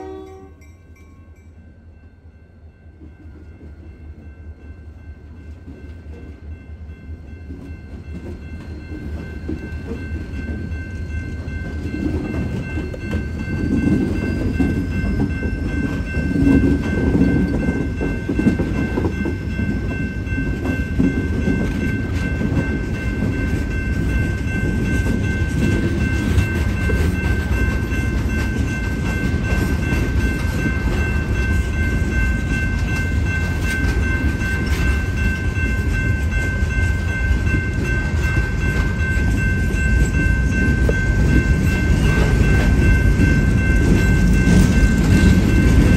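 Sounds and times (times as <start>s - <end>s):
crossing bell ringing: 0.0s - 45.9s
locomotive rumbling: 5.0s - 45.9s
wheels clicking over rail joints: 11.6s - 45.9s.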